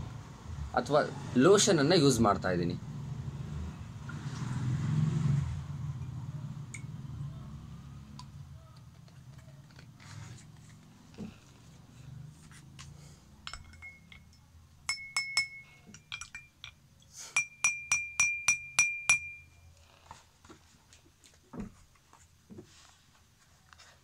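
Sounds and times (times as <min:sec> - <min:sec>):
spoon clinking in glass: 0:13.4 - 0:16.8, 0:17.4 - 0:19.6.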